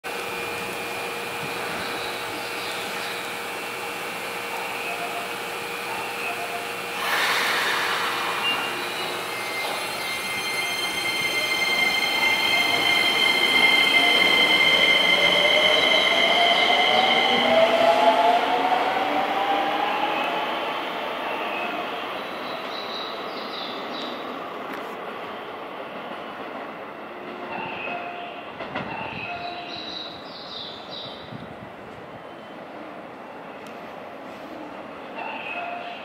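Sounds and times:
electric train inverter whining: 0.1 - 21.3
short hiss: 7.0 - 8.8.

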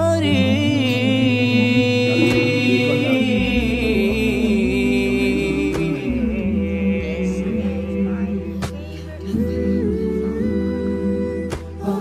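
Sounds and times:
voices singing without instruments: 0.0 - 12.0.

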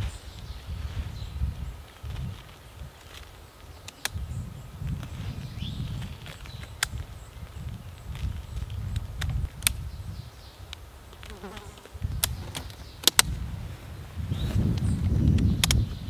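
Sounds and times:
wind rumble on microphone: 0.0 - 16.0
tent pole clips snapping: 1.9 - 4.2, 6.0 - 9.8, 10.7 - 13.4, 14.7 - 15.9.

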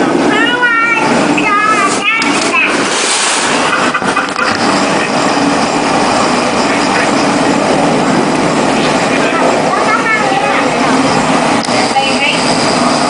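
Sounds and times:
propeller engines droning: 0.0 - 13.0.

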